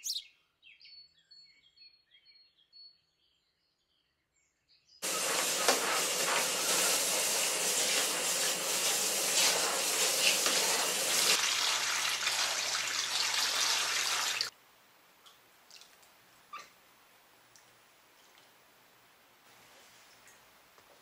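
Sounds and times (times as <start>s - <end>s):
running water splashing: 5.0s - 14.5s
water poured into tub: 5.0s - 14.5s.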